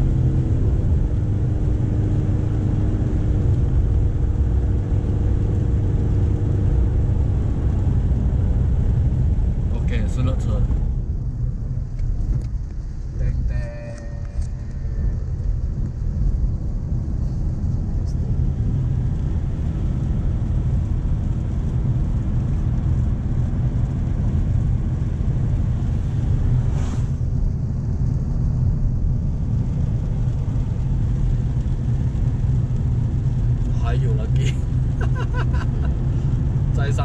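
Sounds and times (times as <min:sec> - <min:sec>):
engine and road noise drone: 0:00.0 - 0:37.0
tyre hiss on wet road: 0:25.8 - 0:27.4, 0:34.2 - 0:36.6
brief whoosh: 0:26.6 - 0:27.3.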